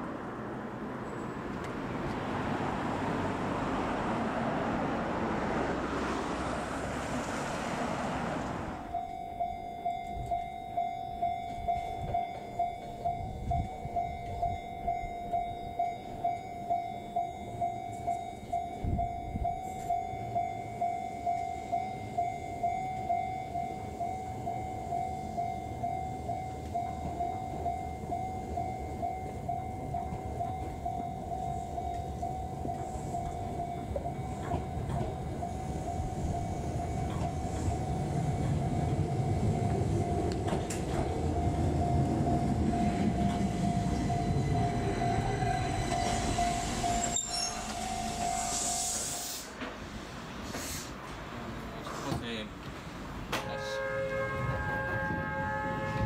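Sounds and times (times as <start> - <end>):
electric train rumbling: 0.0 - 56.0
level crossing alarm ringing: 8.8 - 49.5.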